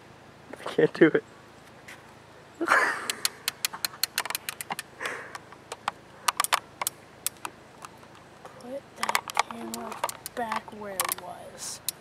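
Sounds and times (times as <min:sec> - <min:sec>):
sharp clicks: 0:03.0 - 0:12.0
person sniffing: 0:05.0 - 0:05.4.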